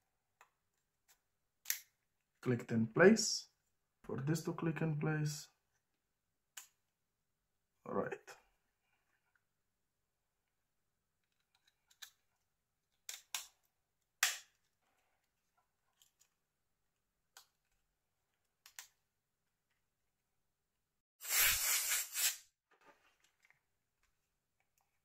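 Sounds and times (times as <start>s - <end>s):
plastic parts clicking: 11.2s - 12.3s.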